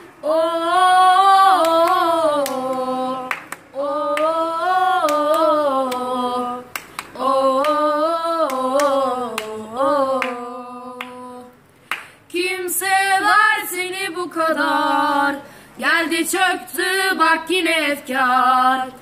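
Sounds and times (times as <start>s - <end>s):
person singing wordlessly: 0.2s - 11.6s
hand claps: 1.6s - 4.4s, 5.0s - 6.1s, 6.7s - 9.6s, 10.2s - 10.4s, 11.0s - 11.2s, 11.8s - 12.2s.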